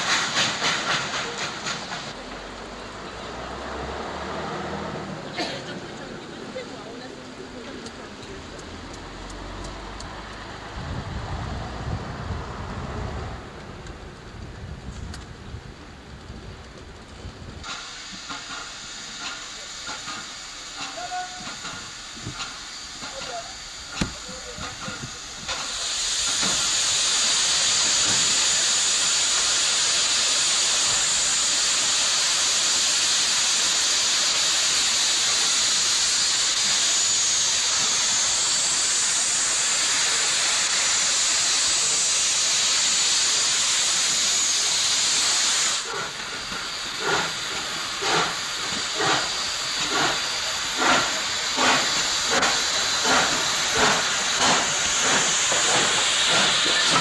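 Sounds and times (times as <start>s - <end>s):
steam locomotive exhaust chuffs: 0.0s - 6.6s, 7.3s - 57.0s
steam hissing from drain cocks: 17.6s - 57.0s.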